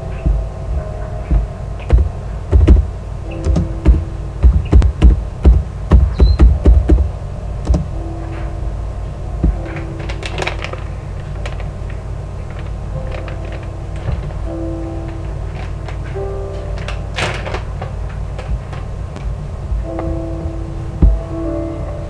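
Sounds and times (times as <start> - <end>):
faint piano music: 0.0 - 22.0
taps and knocks on laptop: 1.3 - 2.9, 3.5 - 7.1
packet crinkling: 9.8 - 18.4.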